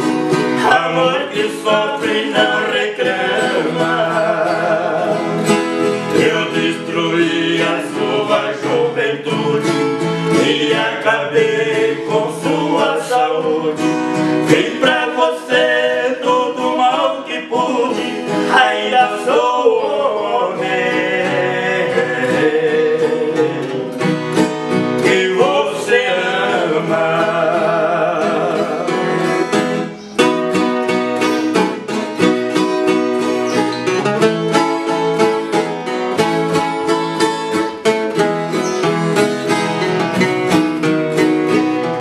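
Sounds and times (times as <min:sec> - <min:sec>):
acoustic guitar: 0:00.0 - 0:42.0
viola strumming and picking: 0:00.0 - 0:42.0
man singing: 0:00.5 - 0:05.5, 0:06.1 - 0:24.1, 0:25.0 - 0:29.9.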